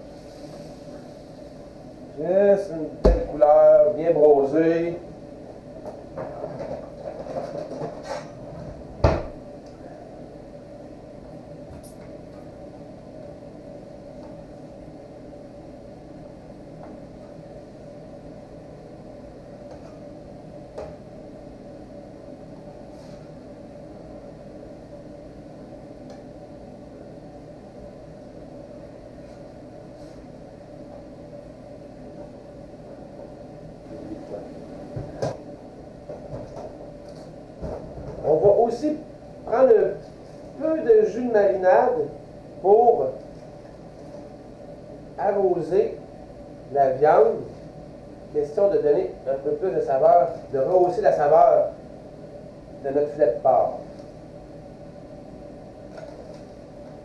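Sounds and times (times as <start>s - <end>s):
steady hum: 0.0s - 57.0s
drawer shutting with a bang: 9.0s - 9.4s.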